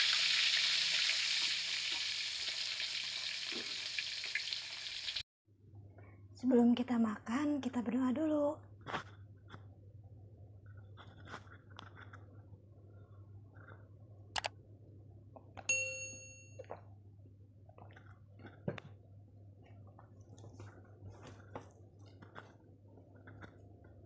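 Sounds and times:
notification bell ding: 0:15.7 - 0:16.6.

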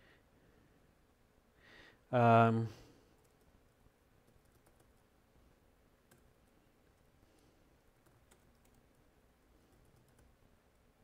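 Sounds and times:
keystrokes on computer keyboard: 0:03.2 - 0:03.5, 0:04.2 - 0:05.1, 0:06.0 - 0:06.3, 0:08.0 - 0:09.0, 0:09.7 - 0:10.4.

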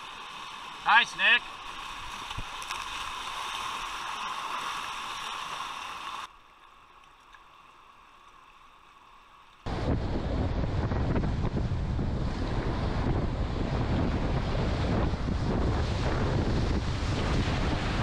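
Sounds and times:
rushing whitewater: 0:00.0 - 0:06.3
wind buffeting microphone: 0:09.7 - 0:18.0.

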